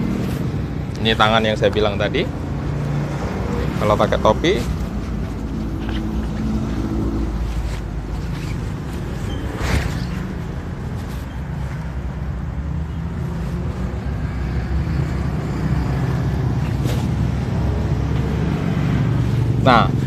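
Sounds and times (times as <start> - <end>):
raincoat rustling: 2.8 - 14.0.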